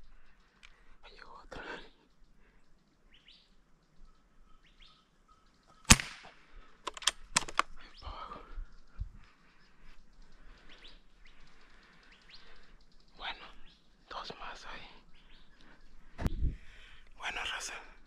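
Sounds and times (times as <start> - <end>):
birds chirping faintly: 0.0 - 18.0
sharp clicks: 5.8 - 7.8
air rifle shot: 5.9 - 6.4.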